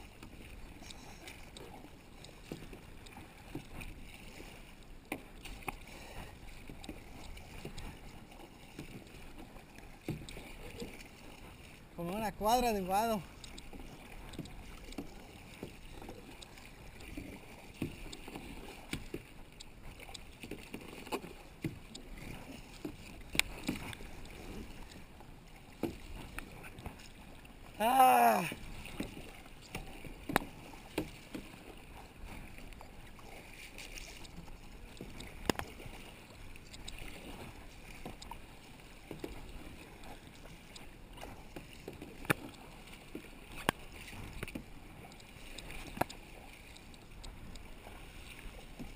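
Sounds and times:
paddle splashing in water: 0.0s - 48.9s
water lapping: 0.0s - 48.9s
paddle knocking plastic hull: 6.6s - 11.4s, 12.2s - 32.6s
person calling out: 12.2s - 13.2s, 27.8s - 28.6s.

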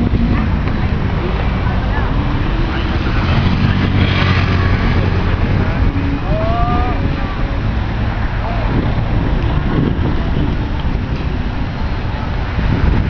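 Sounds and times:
car engines passing: 0.0s - 13.0s
motorcycle engines passing: 0.0s - 13.0s
rush of noise: 0.0s - 13.0s.

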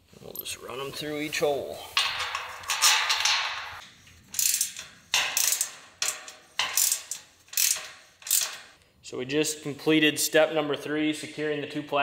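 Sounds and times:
ratchet wrench clicking: 4.3s - 8.7s.

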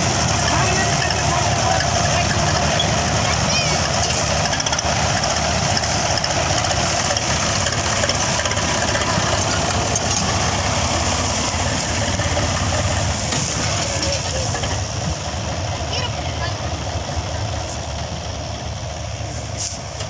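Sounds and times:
diesel machinery engine rumble: 0.0s - 20.0s
hiss: 19.2s - 20.0s.

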